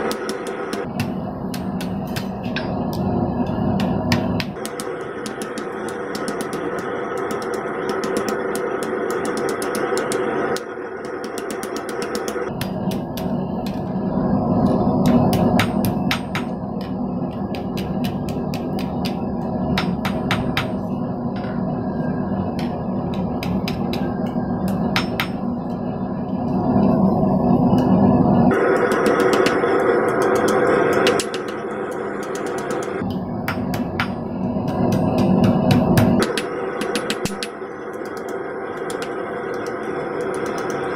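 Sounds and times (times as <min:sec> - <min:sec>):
hammer ringing on sheet steel: 0:00.0 - 0:10.3, 0:11.0 - 0:12.9, 0:22.6 - 0:25.6
hammer striking steel on anvil: 0:00.0 - 0:13.8, 0:15.0 - 0:21.6, 0:22.5 - 0:25.8, 0:28.5 - 0:40.9
continuous dense drone: 0:00.0 - 0:40.9.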